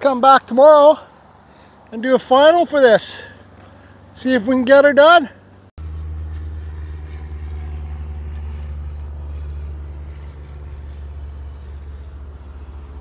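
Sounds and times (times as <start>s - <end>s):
engine low drone: 5.3s - 13.0s.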